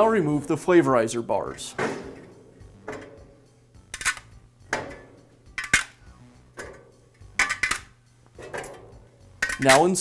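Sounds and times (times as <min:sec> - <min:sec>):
metal bars clinking: 0:01.7 - 0:06.0, 0:06.6 - 0:10.0.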